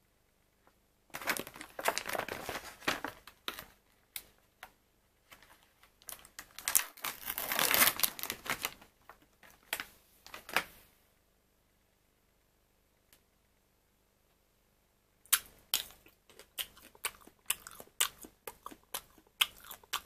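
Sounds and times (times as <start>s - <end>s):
plastic packaging crinkling: 1.1s - 3.8s, 5.3s - 10.7s.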